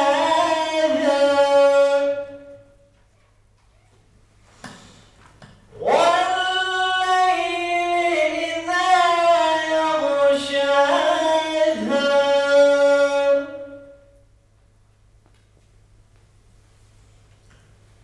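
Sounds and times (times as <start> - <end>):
man chanting into a microphone: 0.0 - 2.7, 5.7 - 14.2.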